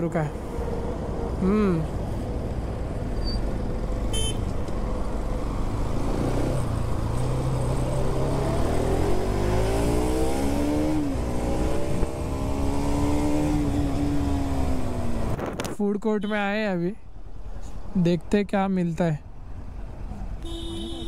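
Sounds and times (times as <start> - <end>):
motorcycle engine accelerating: 5.1 - 15.6.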